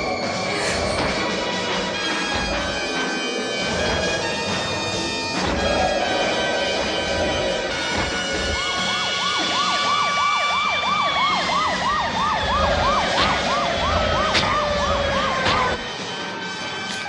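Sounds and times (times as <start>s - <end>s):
police siren yelp: 3.5s - 15.8s.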